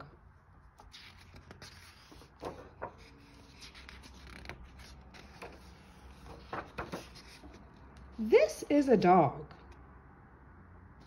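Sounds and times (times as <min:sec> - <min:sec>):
paper pages rustling: 0:00.6 - 0:08.2.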